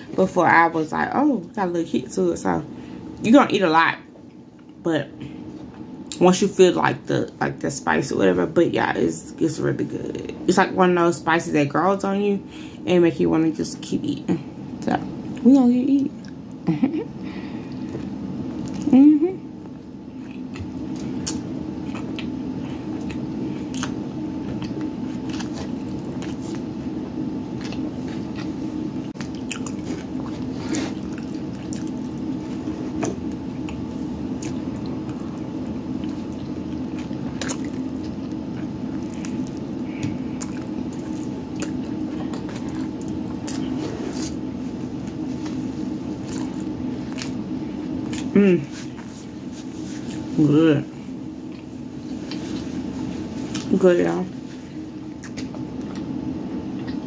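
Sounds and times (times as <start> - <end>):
steady low hum: 0.0 - 57.0
person chewing food: 17.7 - 18.9, 19.6 - 50.3, 51.4 - 53.7, 55.0 - 57.0.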